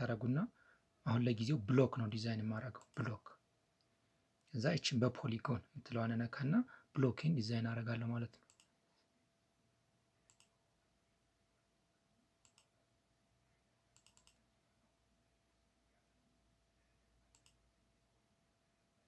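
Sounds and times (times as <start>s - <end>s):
faint steady hum: 0.0s - 19.0s
computer mouse clicks: 2.8s - 3.1s, 8.4s - 8.7s, 10.3s - 10.6s, 12.4s - 12.7s, 13.9s - 14.4s, 17.3s - 17.6s.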